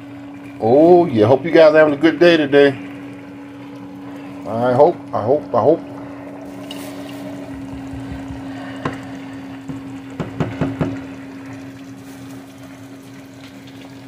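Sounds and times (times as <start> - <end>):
air fryer humming: 0.0 - 14.0
eggs sizzling in frying pan: 6.0 - 14.0.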